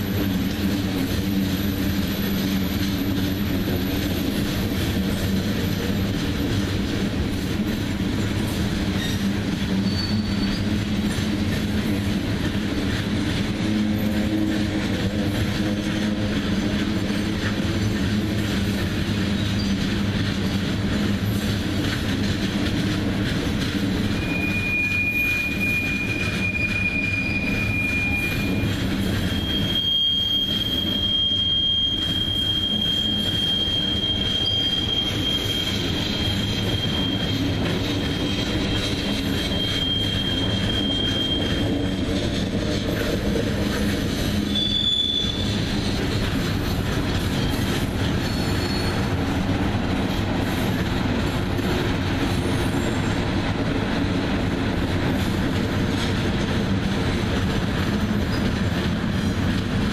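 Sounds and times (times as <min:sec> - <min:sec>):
train wheels rumbling on rails: 0:00.0 - 0:59.9
high-pitched wheel squeal: 0:08.9 - 0:10.7, 0:24.0 - 0:42.1, 0:44.4 - 0:45.9, 0:47.4 - 0:49.2.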